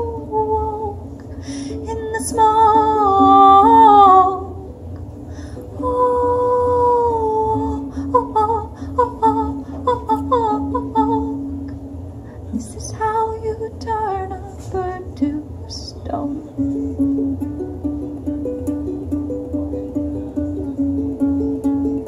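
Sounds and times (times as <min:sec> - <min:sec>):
ukulele strumming: 0:01.7 - 0:05.0, 0:05.6 - 0:11.8, 0:16.6 - 0:22.0.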